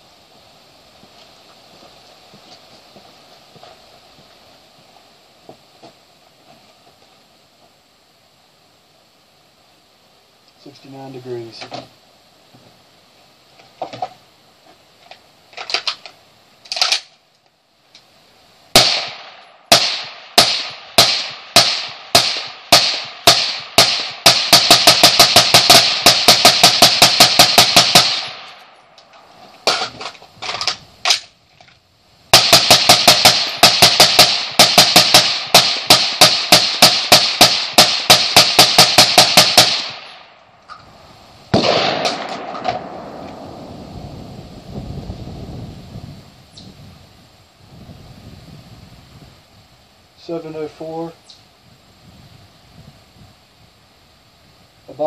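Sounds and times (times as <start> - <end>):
rifle handling clicks: 15.1 - 17.2
suppressed rifle firing: 18.8 - 28.6, 32.3 - 40.0, 41.5 - 43.7.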